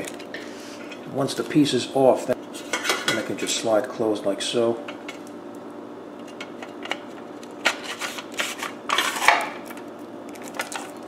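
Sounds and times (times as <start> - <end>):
plastic scraping and rustling: 7.0 - 11.0.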